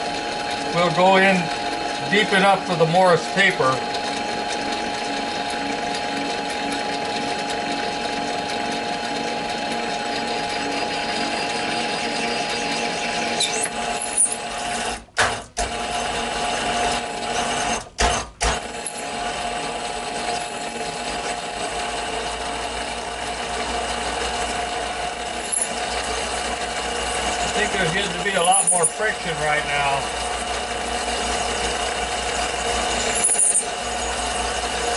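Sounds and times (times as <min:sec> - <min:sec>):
lathe motor whine: 0:00.0 - 0:34.9.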